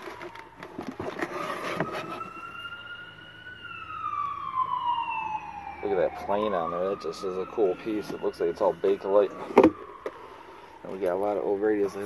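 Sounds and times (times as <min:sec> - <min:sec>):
cardboard rustling: 0:00.0 - 0:02.7
emergency siren wailing: 0:00.0 - 0:12.0.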